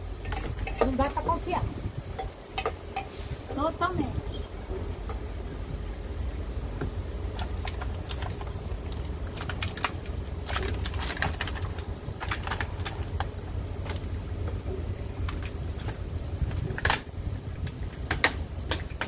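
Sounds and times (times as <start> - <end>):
food frying in oil: 0.0 - 19.0
low rumble: 3.2 - 18.7
crackling pops: 6.8 - 19.0.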